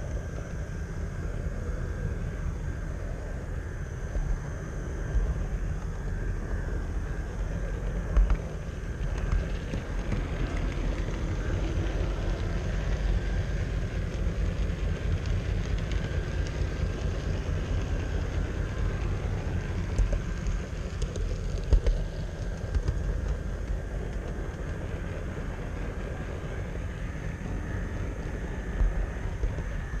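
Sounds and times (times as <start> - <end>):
model train wheels rumbling: 5.7 - 30.0.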